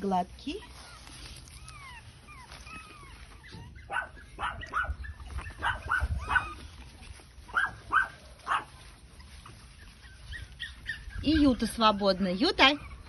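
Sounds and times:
small dog yapping: 0.7s - 6.9s, 7.5s - 8.8s.

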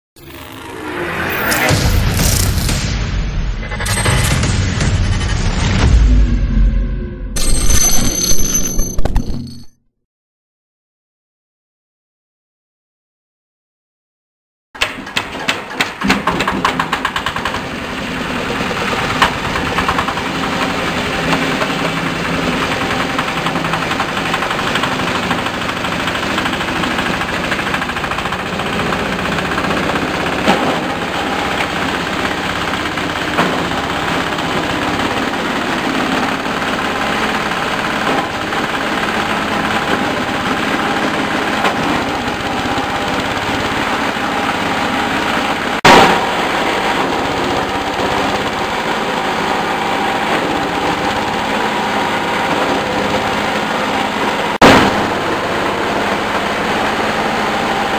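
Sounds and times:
diesel-driven hammer mill grinding: 3.5s - 6.7s, 14.8s - 57.9s.

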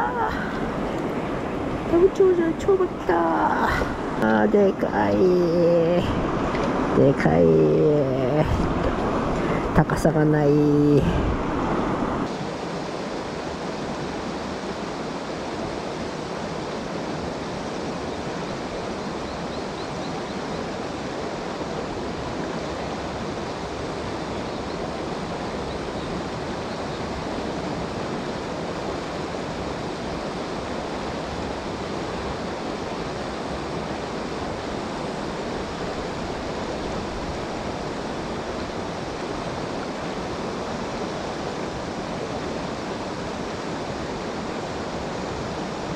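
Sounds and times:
river water flowing over rocks: 0.0s - 45.9s.

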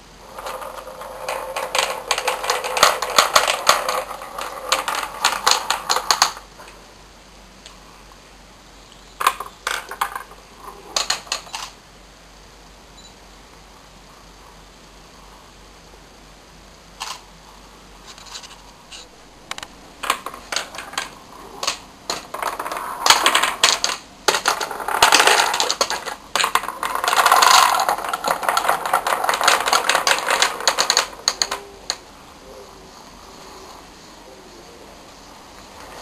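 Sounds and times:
wooden balls clicking and clattering: 0.2s - 6.8s, 9.2s - 11.8s, 19.5s - 32.0s.

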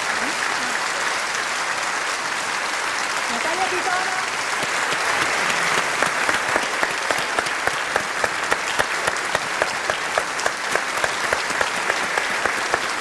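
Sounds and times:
audience applauding: 0.0s - 13.0s
rhythmic clapping in unison: 4.3s - 13.0s.

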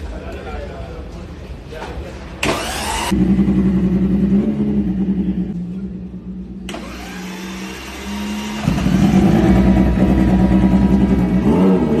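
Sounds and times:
race bike engine running: 7.4s - 11.6s.

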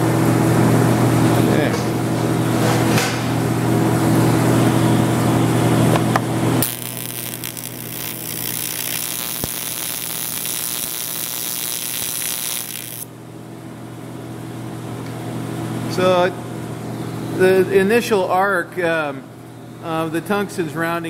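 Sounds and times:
electrical hum: 0.0s - 13.9s
welding arc buzzing hiss: 6.6s - 13.1s.

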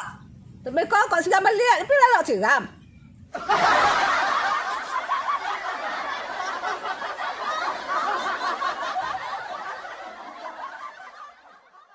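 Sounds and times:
group laughing: 3.3s - 11.9s.

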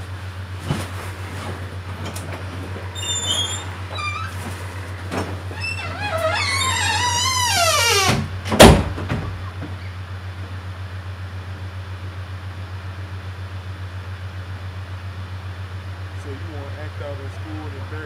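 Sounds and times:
steady low hum: 0.0s - 18.0s
door hinges squeaking: 2.9s - 10.0s
door slamming shut: 5.1s - 9.4s.

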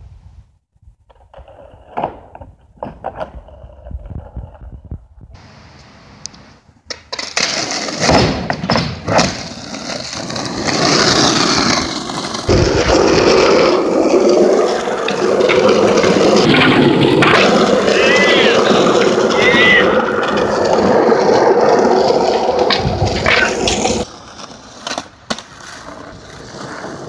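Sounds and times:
skateboard wheels rolling on asphalt: 0.0s - 27.0s
skateboard clacks: 6.8s - 27.0s.

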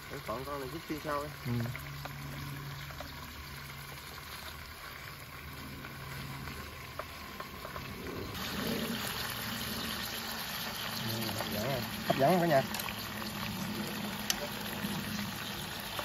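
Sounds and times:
meat frying in hot oil: 0.0s - 16.0s.

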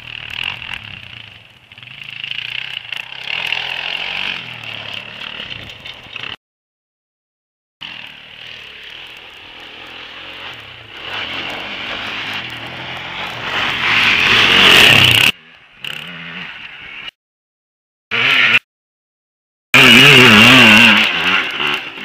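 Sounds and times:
quad engine revving hard: 0.0s - 5.5s, 7.8s - 16.6s, 18.1s - 18.7s, 19.8s - 22.0s.

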